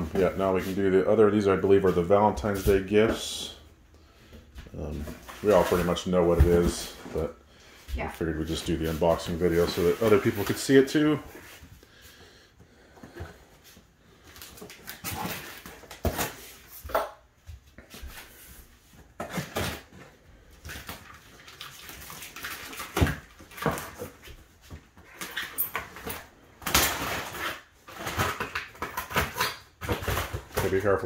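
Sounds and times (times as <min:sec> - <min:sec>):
cardboard rustling: 0:04.9 - 0:07.4, 0:08.0 - 0:11.7
knife slitting packing tape: 0:26.6 - 0:30.1.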